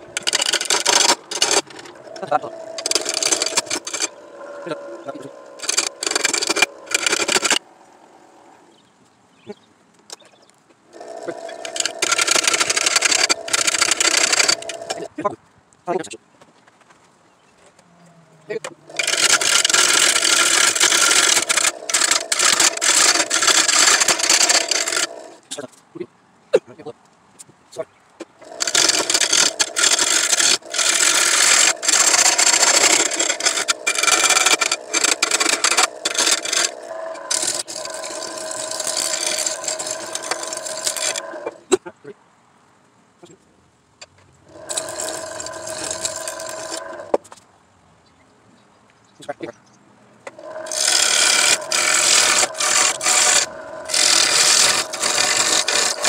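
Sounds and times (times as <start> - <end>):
turning tool scraping wood on lathe: 0.0 - 7.6, 10.9 - 15.1, 18.5 - 25.5, 28.4 - 41.7, 44.5 - 47.2, 50.3 - 56.0
lathe motor hum: 0.0 - 7.7, 10.9 - 15.1, 18.7 - 25.4, 28.4 - 41.6, 44.5 - 47.2, 50.3 - 56.0.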